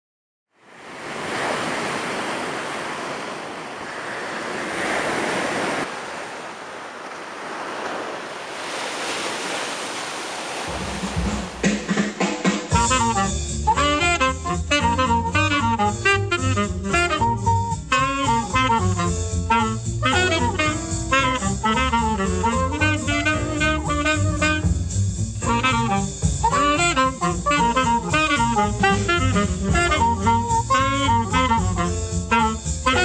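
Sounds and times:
surf breaking over rocks: 0.7 - 12.7
background music: 10.7 - 33.0.

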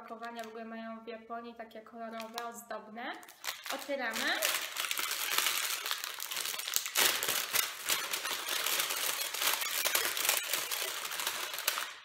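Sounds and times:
snack packaging crinkling: 2.2 - 2.5, 3.2 - 12.0.

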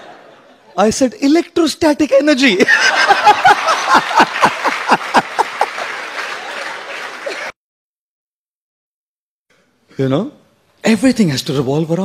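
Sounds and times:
audience laughing: 0.0 - 0.8, 2.6 - 7.6
audience clapping: 2.8 - 7.6.

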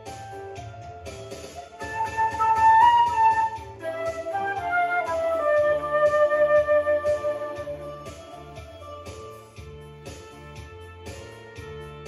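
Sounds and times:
backing track with bass and drums: 0.0 - 12.0
flute melody: 1.8 - 9.0.

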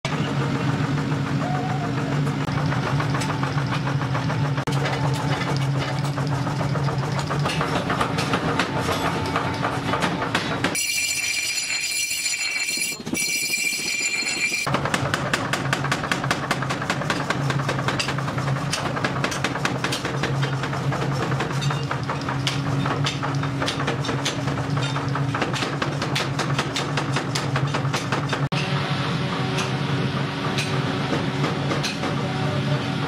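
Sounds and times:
rapid machine knocking: 0.1 - 10.8, 13.0 - 28.5.

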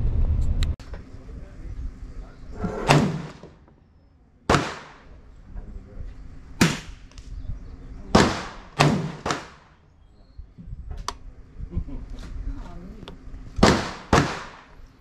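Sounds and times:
gunshots: 2.6 - 3.6, 4.5 - 5.2, 6.6 - 7.1, 8.1 - 9.8, 13.6 - 14.8.

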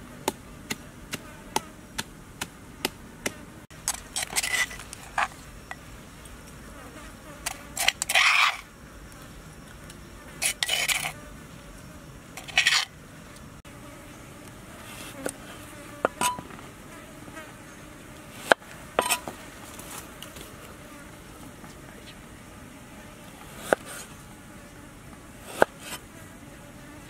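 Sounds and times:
cleaver scraping into bowl: 3.9 - 5.3, 7.8 - 8.6, 10.4 - 11.2, 12.4 - 12.9, 19.0 - 19.3.

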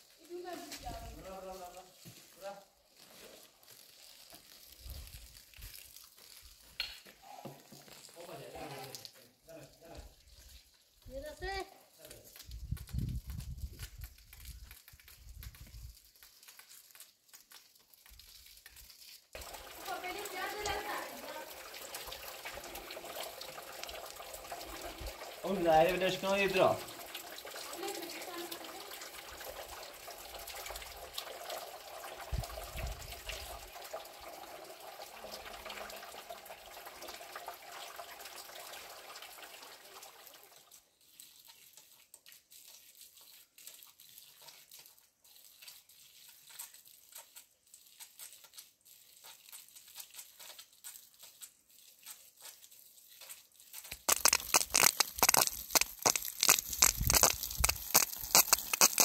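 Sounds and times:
water running: 19.4 - 40.5, 53.8 - 59.0
loud crackling and crunching: 53.9 - 59.0.

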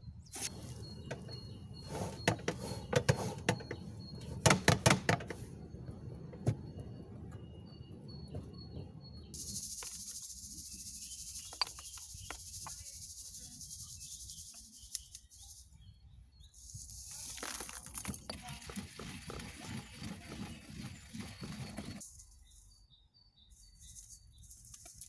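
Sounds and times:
gritty crunching in a stone mortar: 16.8 - 22.0.

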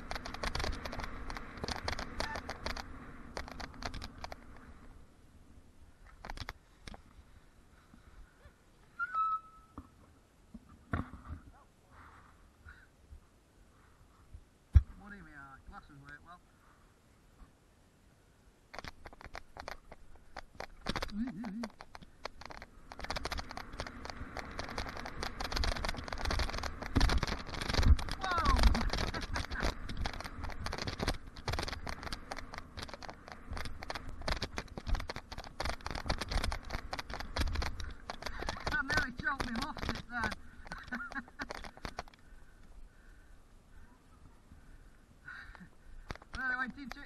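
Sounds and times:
bike freewheel ticking: 0.0 - 4.6, 18.7 - 42.3
bike clicks and rattles over bumps: 0.0 - 8.2, 18.6 - 43.3, 44.5 - 47.0
high-pitched brake squeal: 9.0 - 9.8.

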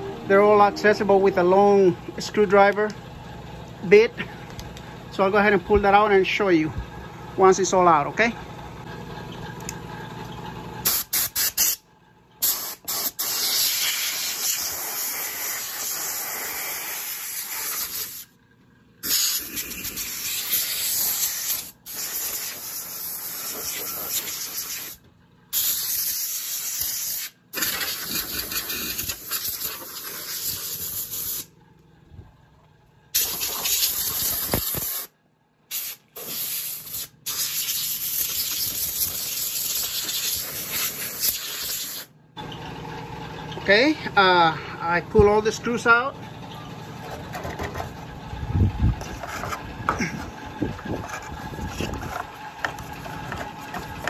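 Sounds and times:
compressed air hissing: 10.8 - 11.8, 12.4 - 18.3, 19.0 - 31.5, 33.2 - 35.1, 35.7 - 42.1.

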